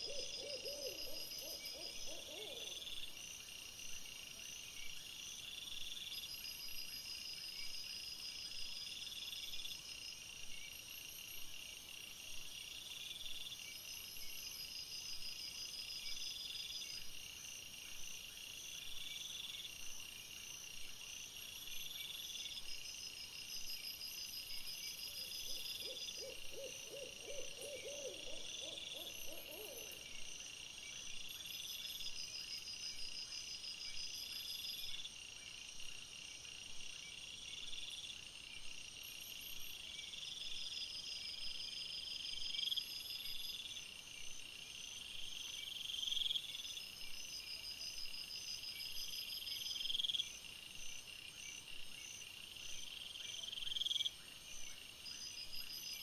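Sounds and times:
low hoot-like calls: 0.0 - 2.8, 25.4 - 30.0
night insects chirping: 0.0 - 56.0.

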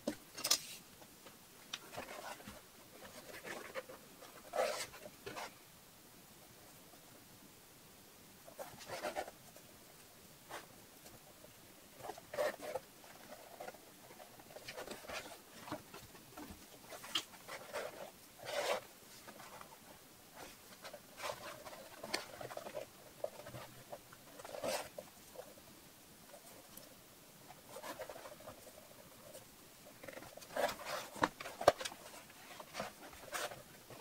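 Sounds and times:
leather rustling and scraping: 1.9 - 5.5, 12.0 - 25.6, 27.5 - 34.0.

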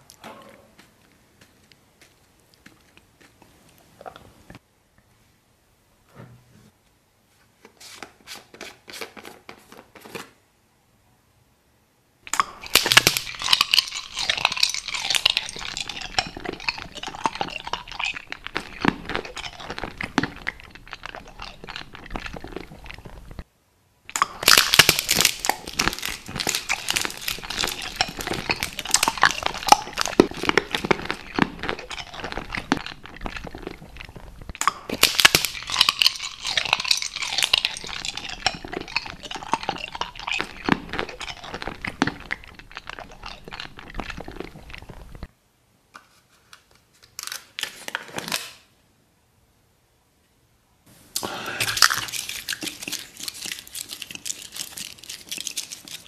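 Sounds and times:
close crunching and crackling: 12.3 - 23.5, 24.1 - 45.3, 51.1 - 56.0.

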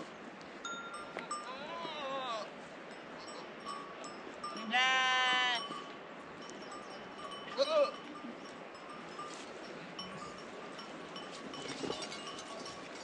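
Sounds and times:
faint bell tinkles: 0.6 - 2.2, 2.9 - 13.0
sheep bleating: 4.6 - 5.6.

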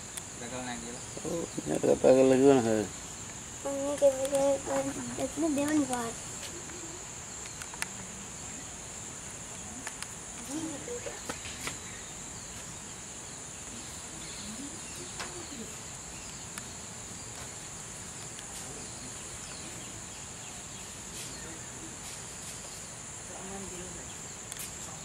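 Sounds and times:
insects droning: 0.0 - 25.0
faint clicks: 3.3 - 4.8.

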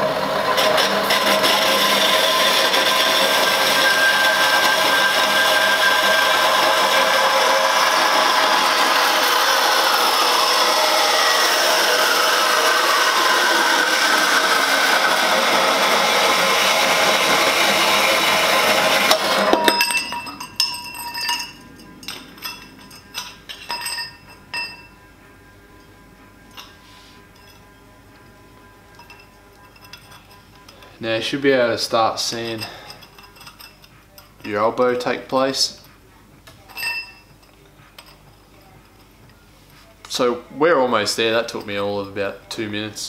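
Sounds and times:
bandsaw cutting metal pipe: 0.0 - 25.0, 28.9 - 35.7, 40.1 - 42.6
metal pipe pieces clinking: 19.1 - 25.0, 28.9 - 31.0, 32.3 - 34.6, 36.5 - 39.1.

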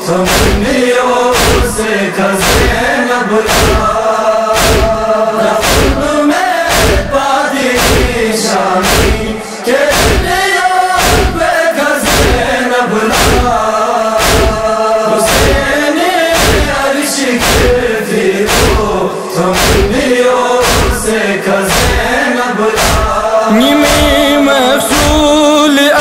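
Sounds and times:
men chanting a lament: 0.0 - 26.0
chest-beating thumps: 0.2 - 1.8, 2.4 - 2.8, 3.4 - 4.0, 4.6 - 6.1, 6.7 - 7.2, 7.8 - 10.4, 11.0 - 11.4, 12.0 - 12.4, 13.1 - 13.6, 14.2 - 14.7, 15.3 - 15.7, 16.4 - 16.8, 17.4 - 17.8, 18.5 - 18.9, 19.5 - 20.0, 20.6 - 21.1, 21.7 - 22.1, 22.8 - 25.6.

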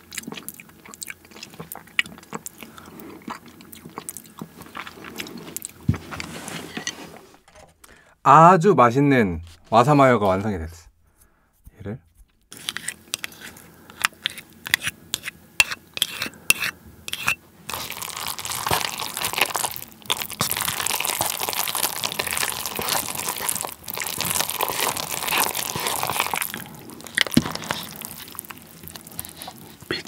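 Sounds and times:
chopsticks stirring noodles in cup: 12.5 - 18.0, 18.7 - 30.0
spoon scraping and tapping: 12.6 - 17.4.

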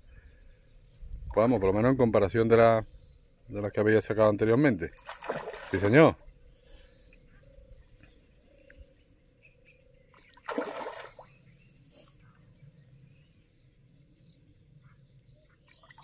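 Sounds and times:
faint water: 0.0 - 16.0
fish splashing at surface: 5.0 - 6.0, 10.4 - 11.3.

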